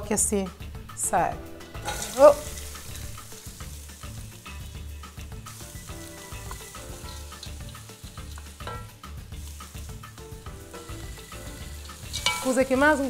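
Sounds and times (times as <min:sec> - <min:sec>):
vegetables sizzling in oil: 0:00.9 - 0:13.0
wooden spoon stirring: 0:10.7 - 0:13.0.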